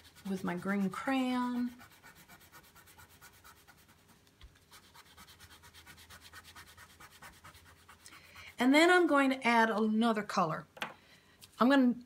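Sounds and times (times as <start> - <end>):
crayon rubbing on paper: 0.0 - 8.7.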